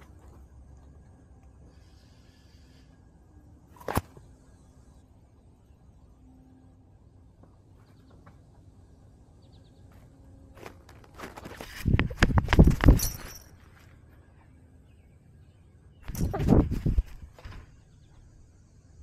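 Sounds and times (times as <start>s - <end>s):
thumps and rustling of worn camera: 10.6s - 14.0s, 16.0s - 17.7s.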